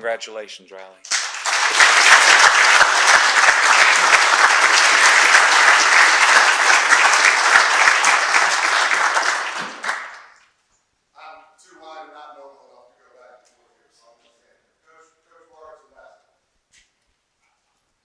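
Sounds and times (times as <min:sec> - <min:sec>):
audience applauding: 0:01.1 - 0:10.4.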